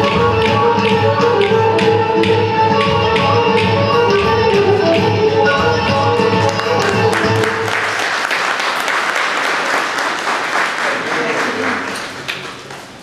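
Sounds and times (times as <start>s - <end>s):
music: 0.0s - 8.2s
small crowd applauding: 6.3s - 13.0s.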